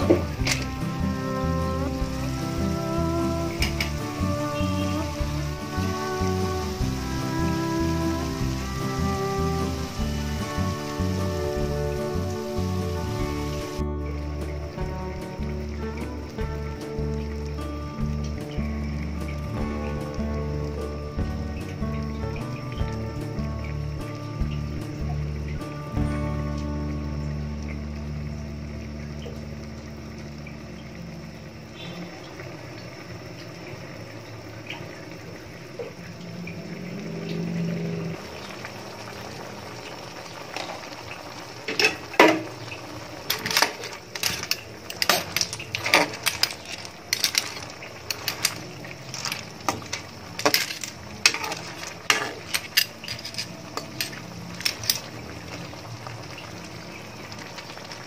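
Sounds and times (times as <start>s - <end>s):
soup boiling with a hiss: 0.0s - 58.0s
clam shells clinking in a pot: 0.1s - 0.8s, 43.3s - 55.2s.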